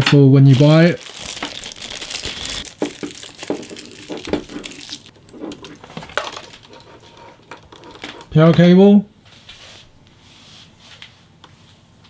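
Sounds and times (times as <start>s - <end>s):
plastic bag crinkling: 0.4s - 7.0s.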